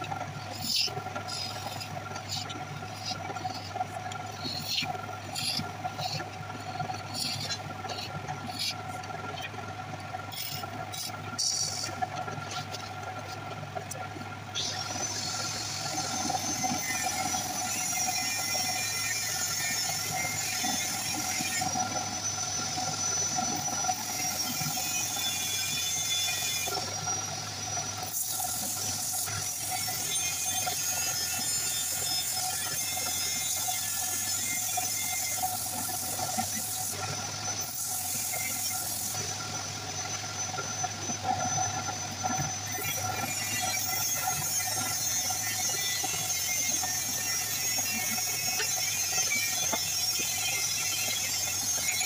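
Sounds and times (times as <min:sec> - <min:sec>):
wood lathe motor hum: 0:00.0 - 0:52.0.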